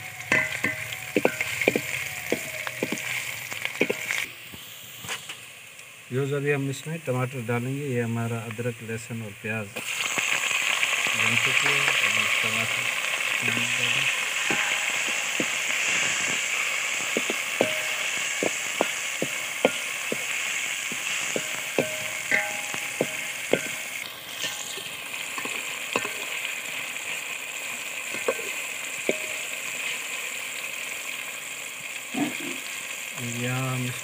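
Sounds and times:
vegetables sizzling in pot: 0.0s - 34.0s
metal spatula scraping pot: 14.1s - 26.4s.

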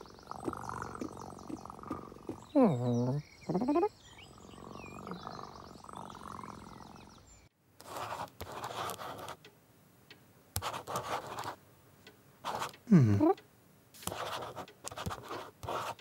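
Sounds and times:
cat purring softly: 0.0s - 3.2s, 4.1s - 7.2s
cartoon cat murmur: 0.0s - 6.9s
pencil scratching on paper: 7.8s - 9.4s, 10.6s - 11.6s, 12.4s - 12.8s, 14.0s - 16.0s.

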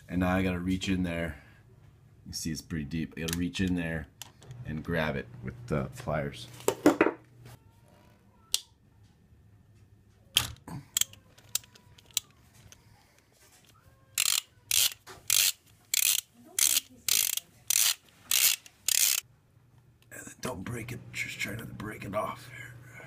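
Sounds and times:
ratchet wrench buzzing: 14.2s - 19.2s
ratchet wrench clicking: 14.2s - 19.2s.

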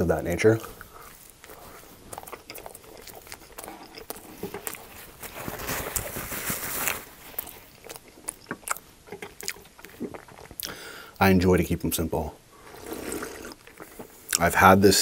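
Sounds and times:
chewing food: 0.6s - 10.8s, 12.6s - 14.5s
wet mouth clicks: 0.8s - 4.9s, 7.4s - 10.8s
paper napkin rustling: 4.8s - 7.7s.

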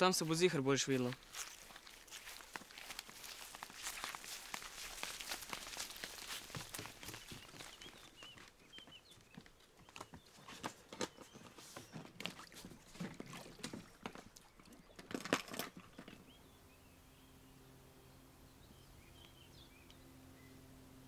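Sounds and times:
knocks and scuffs on wooden dock: 5.6s - 14.4s
faint bird chirps: 15.9s - 20.8s.

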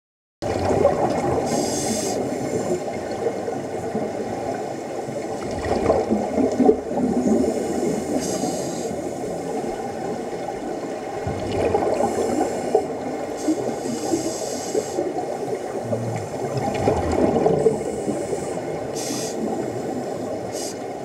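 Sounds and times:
underwater bubbles gurgling: 0.4s - 21.0s
short hisses: 19.0s - 19.5s.

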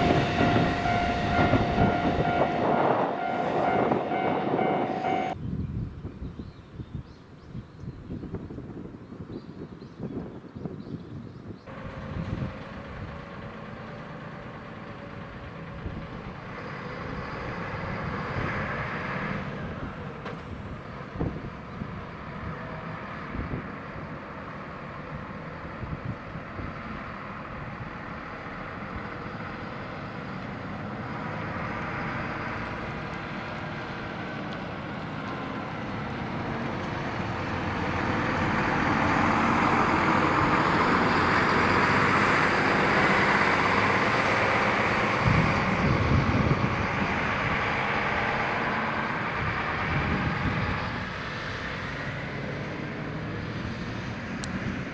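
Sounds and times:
bus driving past: 0.0s - 5.4s, 11.5s - 54.9s
heavy low rumbles: 11.6s - 23.8s, 44.0s - 51.2s.

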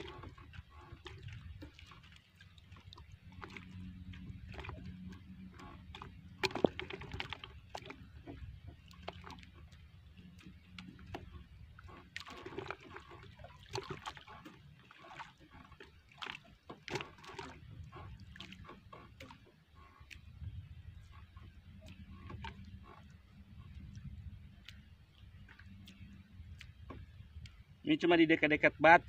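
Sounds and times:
water sloshing against canoe: 0.0s - 29.0s.

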